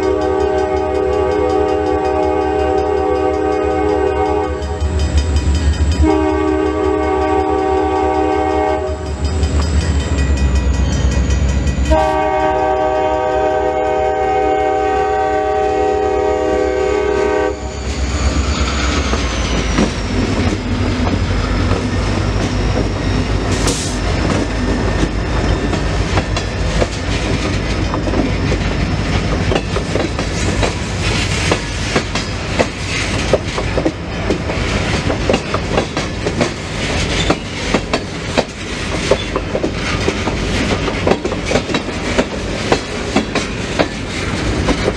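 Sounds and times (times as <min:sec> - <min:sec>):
locomotive air horn blasts: 0:00.0 - 0:04.8, 0:06.0 - 0:09.1, 0:11.9 - 0:17.8.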